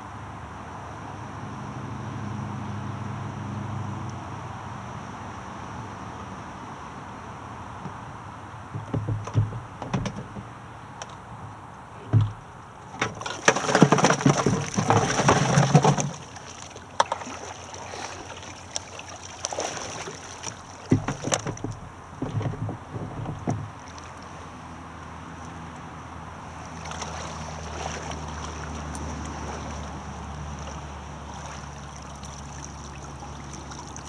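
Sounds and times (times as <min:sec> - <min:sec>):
plastic knocking and rattling: 0:08.7 - 0:10.5, 0:12.0 - 0:12.4, 0:13.0 - 0:16.2, 0:20.9 - 0:23.8.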